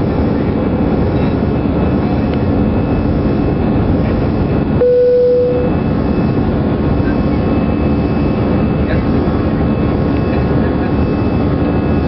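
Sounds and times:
jet engine cabin roar: 0.0 - 12.0
short steady tone: 4.8 - 5.8.

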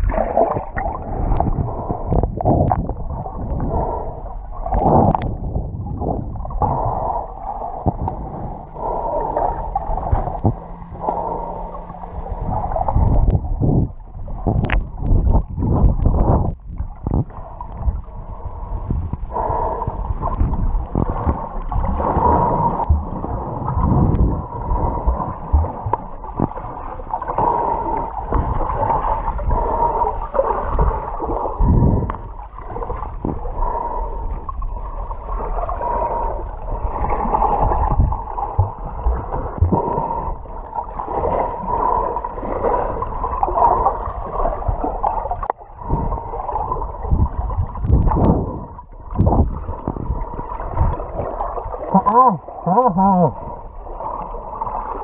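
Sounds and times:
muffled underwater gurgling: 0.0 - 55.0.

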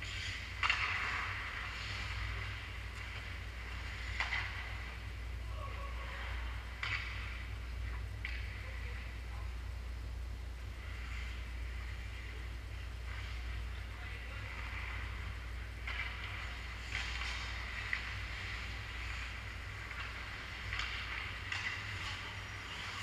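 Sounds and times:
skates scraping on ice: 0.0 - 5.0, 10.8 - 23.0
hockey sticks clacking: 0.0 - 5.1, 6.2 - 9.0, 10.9 - 23.0
steady low hum: 0.0 - 23.0
puck hit: 0.6 - 2.4, 4.0 - 4.9, 6.8 - 7.3, 15.8 - 23.0.

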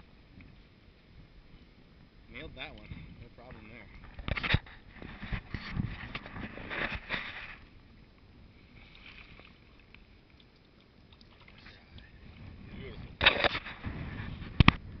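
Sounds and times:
water trickling: 7.7 - 13.2
stream water splashing: 8.5 - 12.6.

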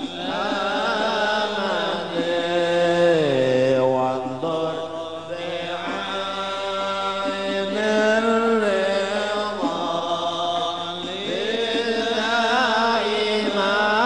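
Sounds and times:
person chanting devotional song: 0.0 - 14.0.

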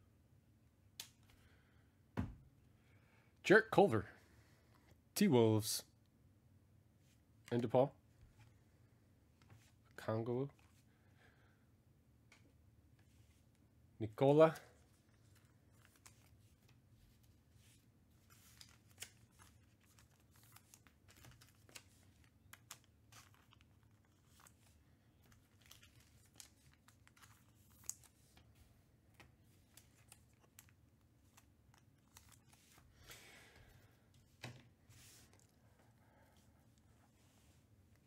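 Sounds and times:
pack wrapper crinkling and tearing: 18.2 - 28.2.

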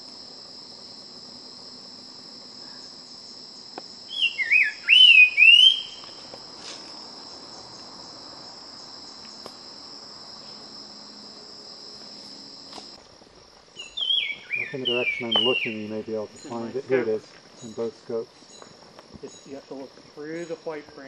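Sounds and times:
high insect buzz: 0.0 - 21.0
bird whistling song: 4.1 - 6.1, 13.8 - 16.5.

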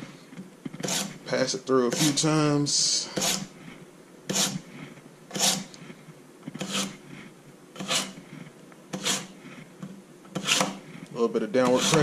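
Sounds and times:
knife rasping through sharpener: 0.8 - 1.2, 3.2 - 3.5, 4.3 - 4.6, 5.3 - 5.8, 6.6 - 7.0, 7.8 - 8.2, 8.9 - 9.4, 10.4 - 10.8, 11.6 - 12.0.

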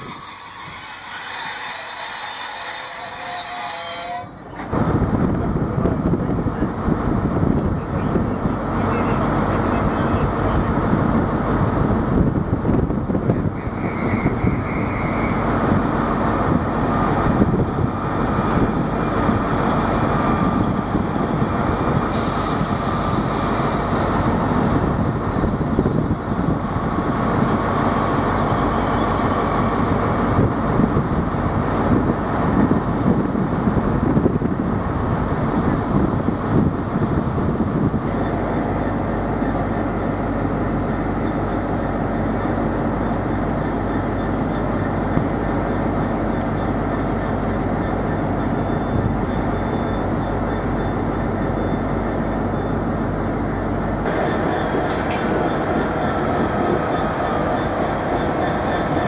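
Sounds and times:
diesel locomotive idling: 15.1 - 59.0
air hissing: 22.1 - 25.0.

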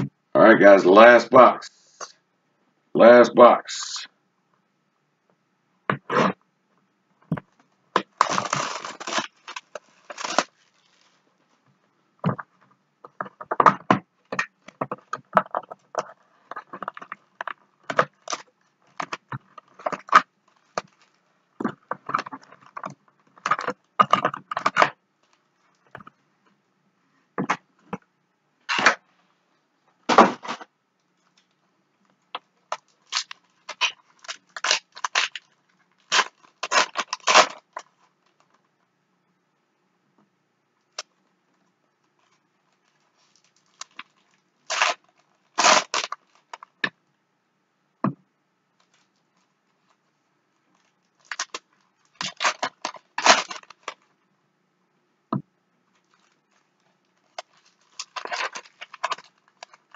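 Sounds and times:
cardboard tearing: 8.0 - 11.2, 30.1 - 30.6, 33.0 - 37.9, 43.2 - 46.6, 51.2 - 54.0, 57.3 - 59.9
foil wrappers crinkling: 8.0 - 11.3, 15.1 - 21.2, 32.7 - 38.6, 42.2 - 46.8, 50.7 - 54.1, 56.0 - 59.9.

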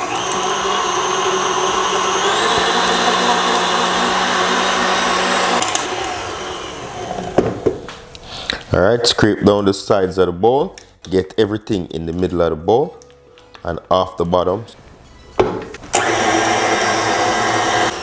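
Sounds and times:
mixer clicks: 0.0 - 6.2
stand mixer motor whine: 0.0 - 7.4, 15.9 - 18.0.

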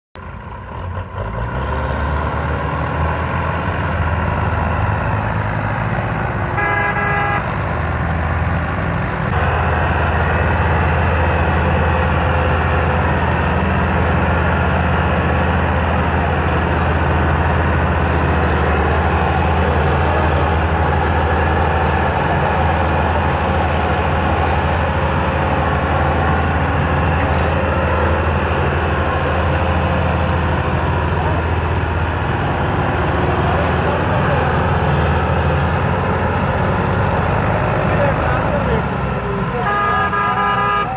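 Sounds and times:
tractor diesel engines running: 0.2 - 40.9
vehicle horn toot: 6.5 - 7.6, 39.5 - 40.9.

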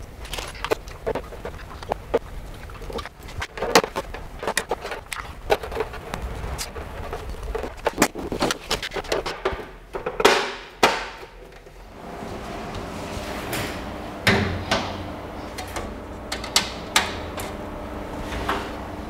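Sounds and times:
plastic cover scraping: 0.0 - 10.3.

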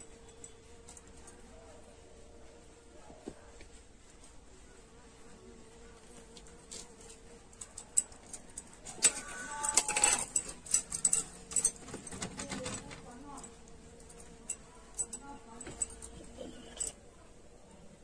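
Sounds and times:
bangles clinking: 7.7 - 12.2, 14.1 - 17.0
fingers scraping a steel bowl: 14.4 - 17.0.

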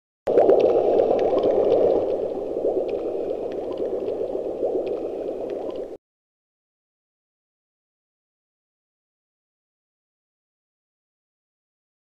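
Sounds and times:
water bubbling and gurgling: 0.3 - 6.0.

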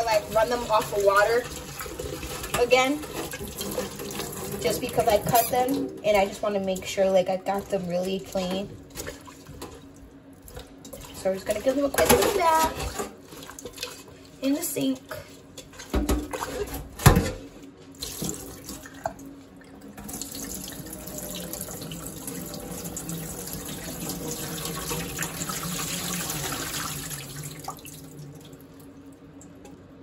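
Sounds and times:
water pouring into sink: 0.0 - 6.9, 18.0 - 19.2, 20.0 - 28.8.

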